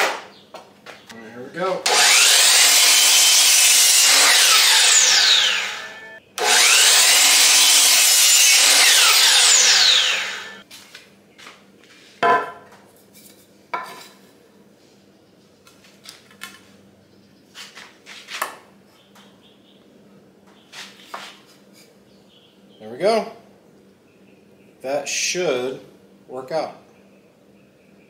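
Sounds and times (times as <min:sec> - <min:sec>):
miter saw cutting wood: 0:01.8 - 0:10.6.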